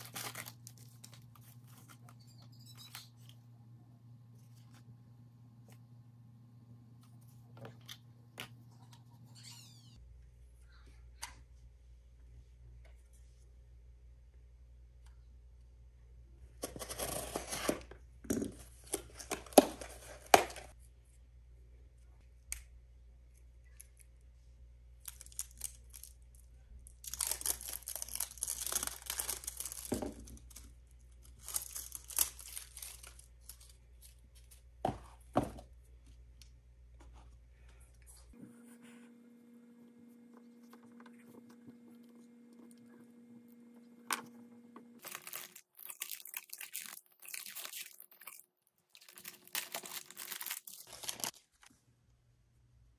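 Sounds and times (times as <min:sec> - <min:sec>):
packaging tearing and crinkling: 0:00.0 - 0:01.8, 0:25.0 - 0:26.2, 0:27.0 - 0:30.6, 0:31.2 - 0:33.8, 0:45.0 - 0:51.4.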